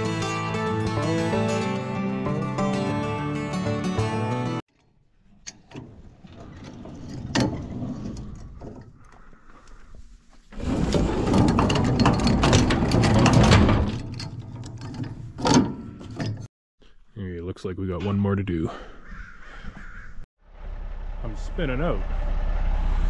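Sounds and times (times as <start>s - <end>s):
machinery clattering and rattling: 10.5s - 16.5s.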